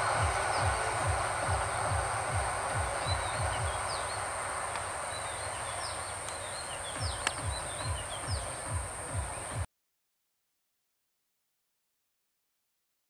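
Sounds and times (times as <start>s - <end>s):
distant train rumbling: 0.0s - 9.6s
thin high-pitched drone: 0.0s - 9.6s
small birds chirping: 0.0s - 9.7s.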